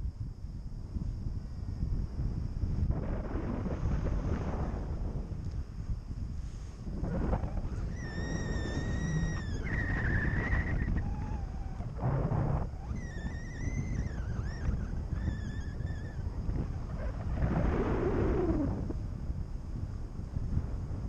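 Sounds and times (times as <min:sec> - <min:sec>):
wind rushing over microphone: 0:00.0 - 0:21.0
thin high whistle-like tone: 0:07.1 - 0:17.2.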